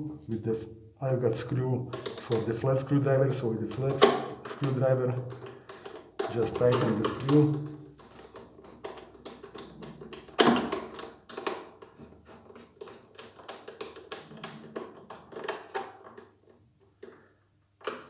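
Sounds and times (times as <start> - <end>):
screwdriver clicking and scraping: 5.4 - 18.0.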